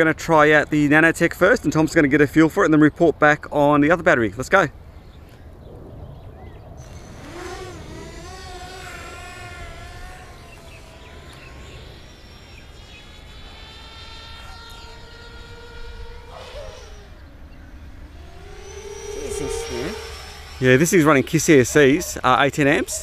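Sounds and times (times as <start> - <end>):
quadcopter motor and prop whine: 6.8 - 23.0.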